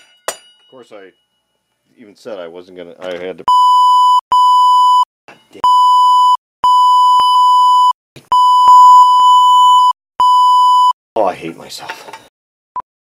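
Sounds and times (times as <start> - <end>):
censor bleep tone: 3.5 - 11.0.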